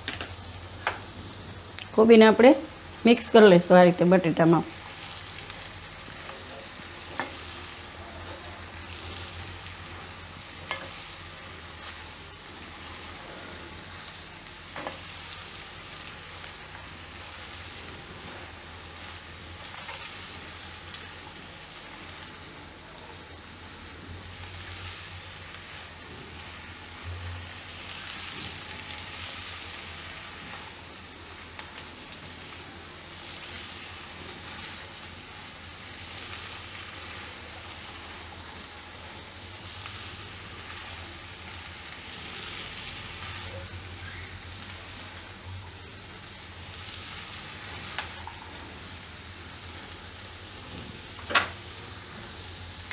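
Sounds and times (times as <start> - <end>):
vegetables sizzling in oil: 0.0 - 52.9
spatula stirring in pan: 4.7 - 22.4.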